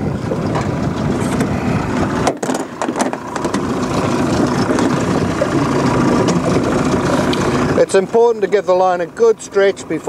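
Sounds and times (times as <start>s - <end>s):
wind on microphone: 0.0s - 7.8s
outboard motor idling: 0.0s - 10.0s
sharp clicks and knocks of gear: 2.2s - 8.3s.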